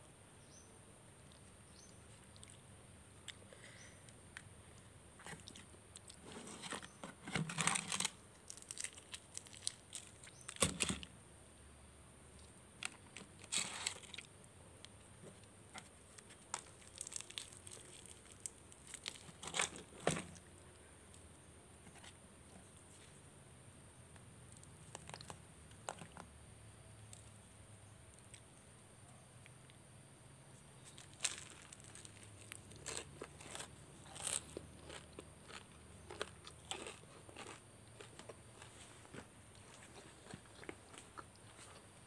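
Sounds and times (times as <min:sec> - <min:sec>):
tearing crispy fried chicken: 0:05.2 - 0:11.0, 0:16.1 - 0:20.3, 0:30.8 - 0:38.7.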